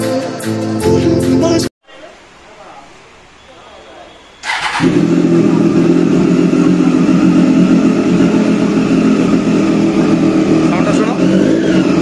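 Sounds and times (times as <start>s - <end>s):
motorcycle engine starting and idling: 4.4s - 12.0s.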